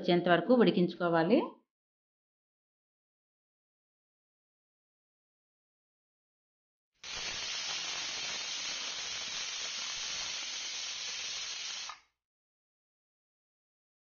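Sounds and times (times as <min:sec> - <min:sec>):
pressure cooker steam hissing: 0:07.0 - 0:12.0.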